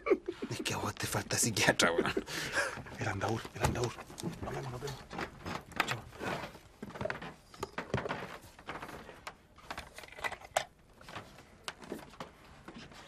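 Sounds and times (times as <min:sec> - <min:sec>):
papers rustling: 0:02.8 - 0:13.0.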